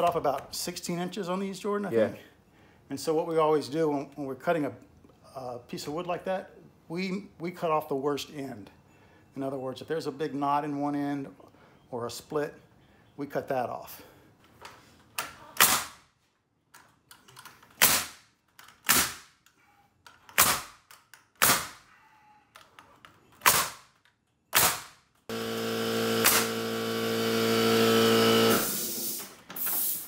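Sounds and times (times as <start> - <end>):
nail gun shots: 15.6 - 16.0, 17.8 - 19.4, 20.3 - 21.9, 23.4 - 25.0, 26.1 - 26.8
motor hum: 25.3 - 29.2.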